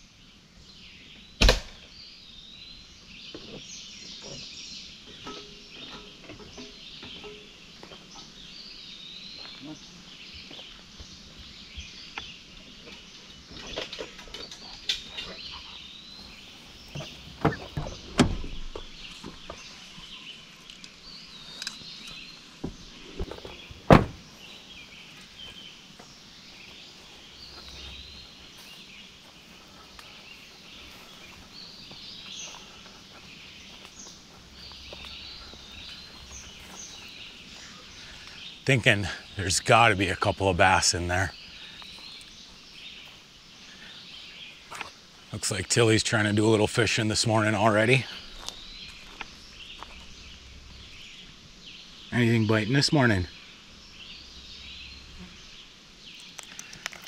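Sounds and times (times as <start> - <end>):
forest birds singing: 0.0 - 57.0.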